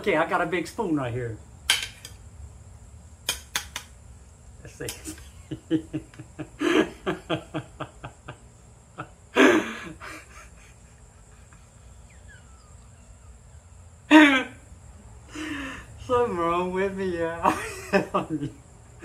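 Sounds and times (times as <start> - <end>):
man chuckling: 4.9 - 14.6, 17.4 - 18.6
man exclaiming: 14.1 - 14.6, 16.0 - 18.4.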